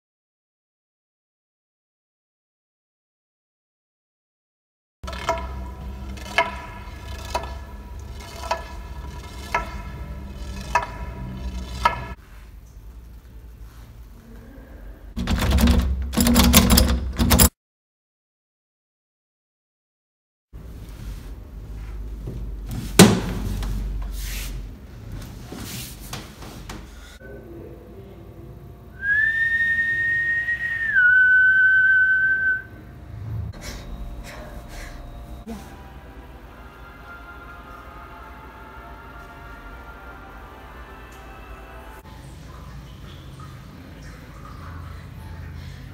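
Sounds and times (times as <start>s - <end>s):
person whistling long notes: 28.9s - 32.8s
steady low hum: 32.6s - 41.9s.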